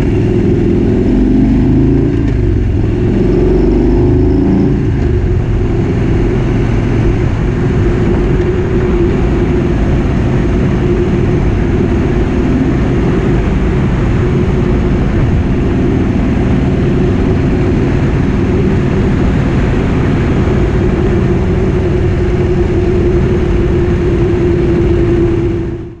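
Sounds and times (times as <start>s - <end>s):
motorcycle engine cruising: 0.0s - 26.0s.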